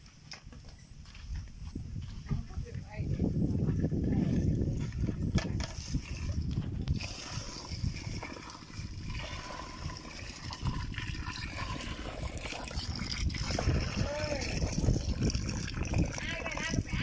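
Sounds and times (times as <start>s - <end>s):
water running into plastic bucket: 4.4s - 17.0s.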